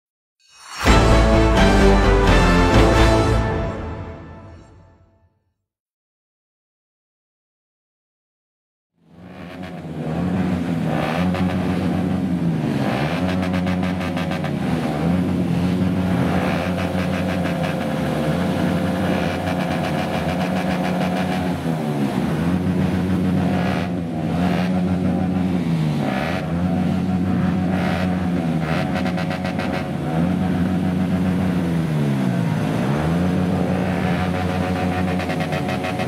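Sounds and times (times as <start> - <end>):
motorcycle engines revving: 9.1 - 36.0.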